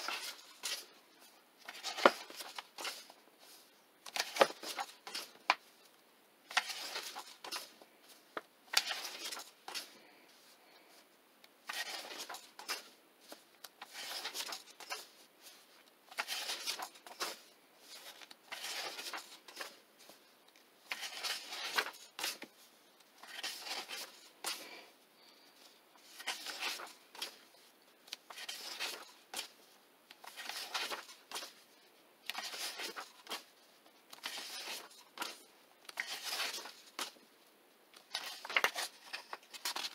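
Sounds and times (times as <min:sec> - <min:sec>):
paper pages turning: 0:00.0 - 0:10.9, 0:11.6 - 0:37.2, 0:37.9 - 0:39.9
sharp paper clicks: 0:38.0 - 0:39.9.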